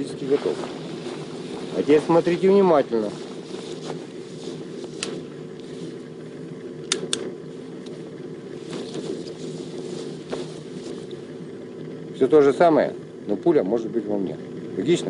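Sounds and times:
low mechanical hum: 0.0s - 15.0s
sharp clicks: 6.8s - 8.0s.

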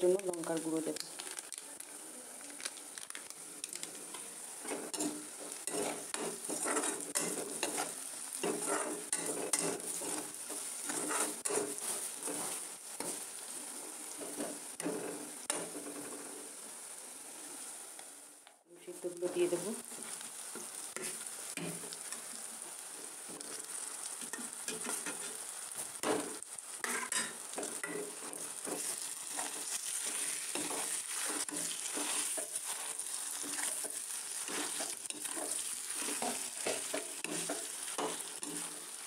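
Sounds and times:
food sizzling in oil: 0.0s - 39.0s
metal spatula scraping a pan: 4.1s - 16.4s, 23.3s - 39.0s.

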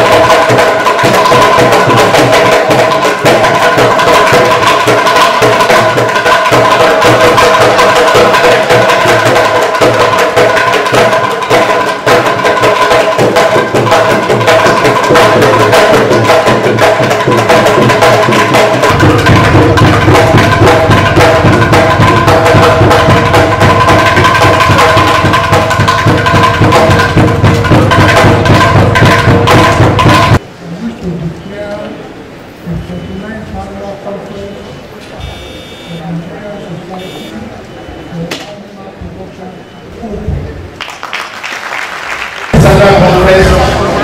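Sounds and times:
loud dance music: 37.0s - 37.3s.

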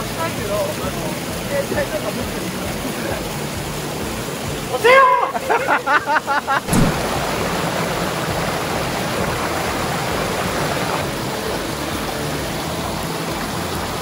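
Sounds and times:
river water rushing: 0.0s - 14.0s
brief knock: 6.7s - 7.0s.

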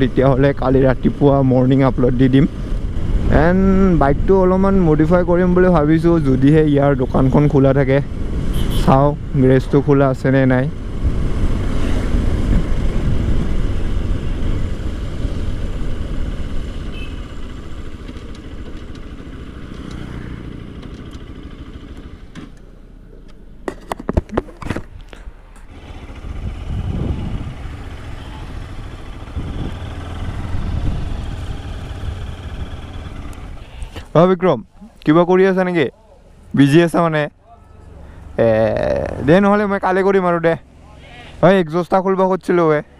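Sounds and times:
motorcycle engine: 0.0s - 34.0s
wind noise: 10.8s - 17.1s, 26.2s - 28.4s, 29.2s - 32.7s.

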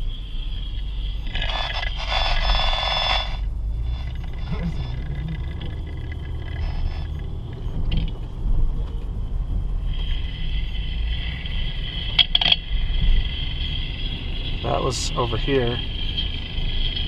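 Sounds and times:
road rumble inside car: 0.0s - 17.0s
scratchy noise through speaker: 1.3s - 7.8s
high steady tone: 9.8s - 17.0s.

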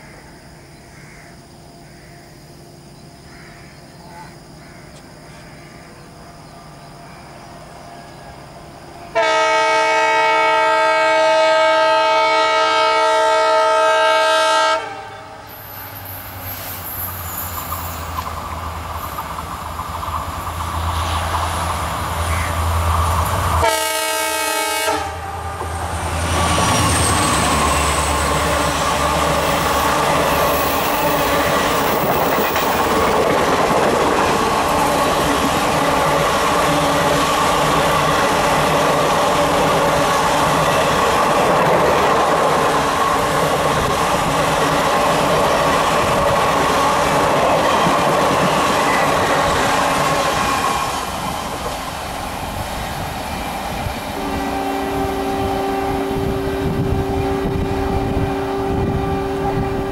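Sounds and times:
train rushing past: 6.2s - 59.9s
train horn blast: 9.1s - 15.5s, 23.6s - 32.4s, 54.2s - 59.9s
diesel locomotive engine running: 15.5s - 59.9s.

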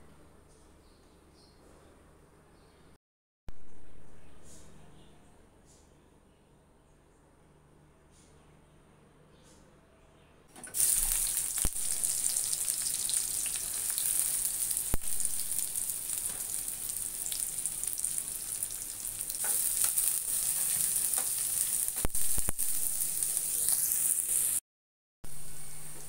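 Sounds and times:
onions sizzling in hot oil: 10.6s - 24.6s.

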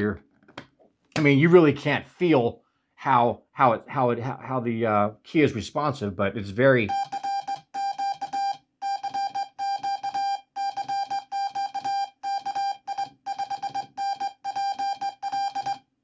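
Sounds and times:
morse code beeps: 6.9s - 15.9s.

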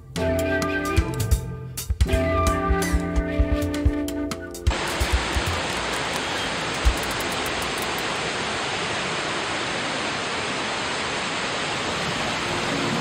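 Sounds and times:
river rapids rushing: 4.7s - 13.0s.

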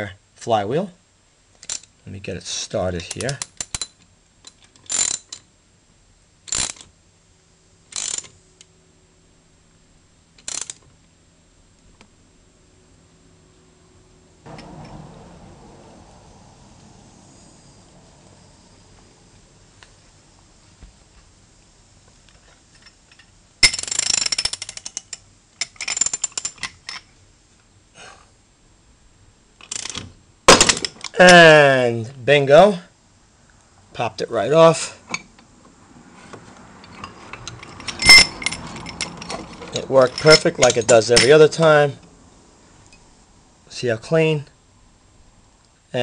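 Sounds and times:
ratchet wrench clicking: 3.1s - 5.4s, 6.5s - 6.9s, 7.9s - 8.4s, 10.4s - 10.8s, 23.6s - 26.7s, 36.9s - 40.8s
socket ratchet clicking: 7.9s - 8.3s.

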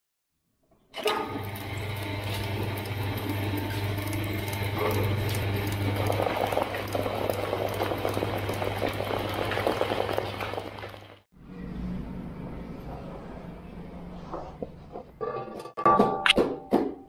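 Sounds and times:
shredder cutters clattering: 1.0s - 6.8s
electric motor hum: 1.0s - 11.2s.

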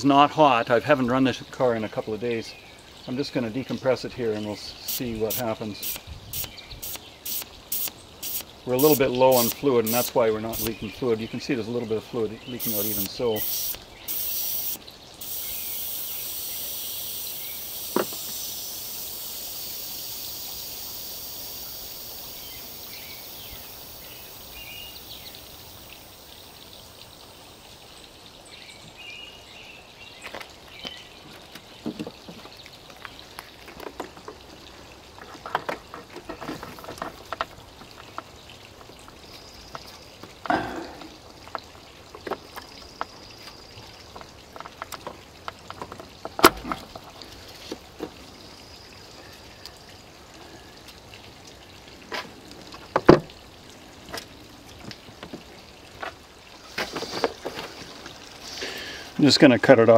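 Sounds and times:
pressure hissing: 4.8s - 10.8s, 12.6s - 27.0s.

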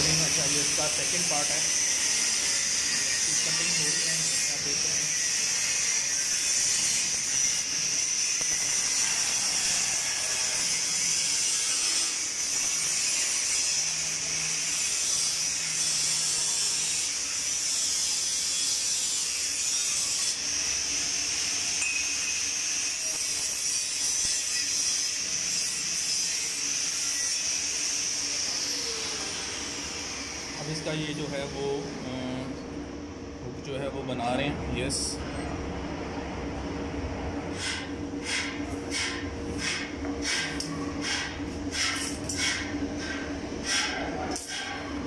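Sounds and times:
angle grinder cutting steel: 0.0s - 31.9s.

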